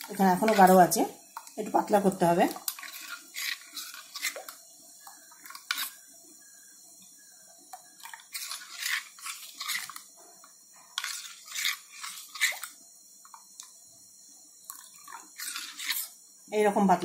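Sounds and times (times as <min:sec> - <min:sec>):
spoon scraping and clinking bowl: 0:11.0 - 0:12.7, 0:15.4 - 0:16.1.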